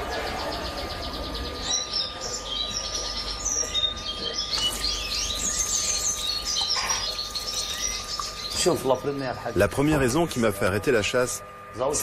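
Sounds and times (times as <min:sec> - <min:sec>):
finch twittering song: 0:00.0 - 0:09.6.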